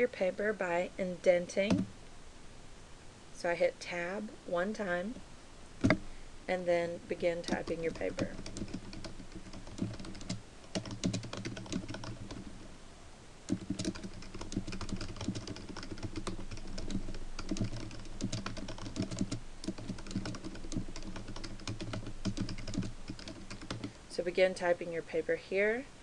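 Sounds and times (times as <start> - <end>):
typing on computer keyboard: 7.4 - 12.5, 13.5 - 24.0.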